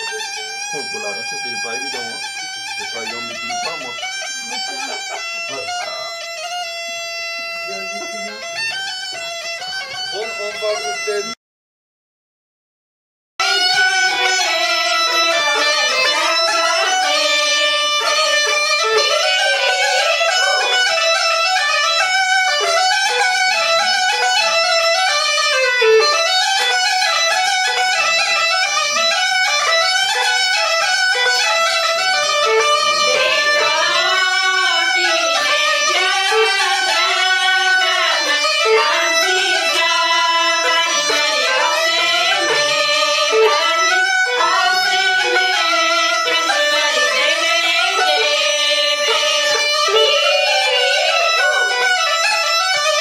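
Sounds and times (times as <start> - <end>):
women singing folk song: 13.4 - 21.3, 33.1 - 52.2.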